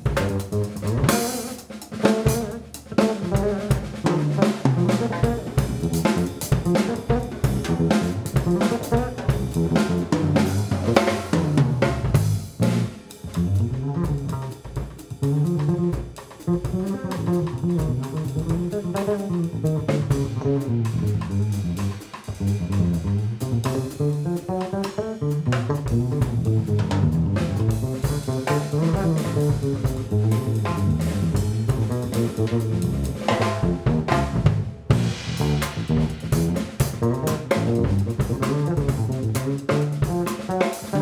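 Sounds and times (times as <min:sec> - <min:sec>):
cymbals: 0:00.0 - 0:16.9, 0:27.7 - 0:41.0
drum kit solo: 0:00.0 - 0:41.0
electric bass line: 0:00.0 - 0:41.0.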